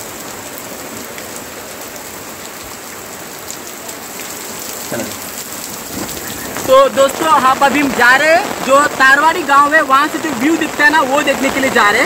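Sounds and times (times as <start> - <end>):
heavy rain on muddy ground: 0.0 - 12.0.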